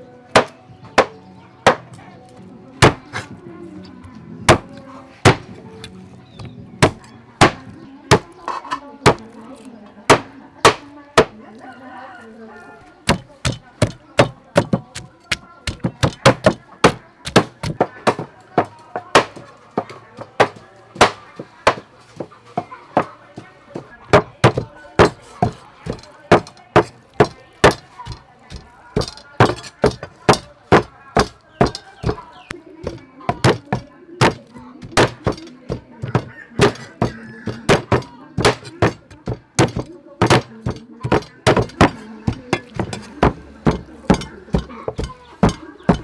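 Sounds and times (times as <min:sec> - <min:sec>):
cleaver chopping on wooden board: 0:00.3 - 0:01.9, 0:02.8 - 0:03.2, 0:04.5 - 0:05.5, 0:06.4 - 0:08.4, 0:09.0 - 0:09.4, 0:10.1 - 0:11.4, 0:13.1 - 0:23.1, 0:23.8 - 0:46.0
pestle pounding in wooden mortar: 0:02.8 - 0:03.0, 0:04.5 - 0:05.5, 0:06.4 - 0:08.4, 0:09.0 - 0:09.2, 0:13.0 - 0:46.0.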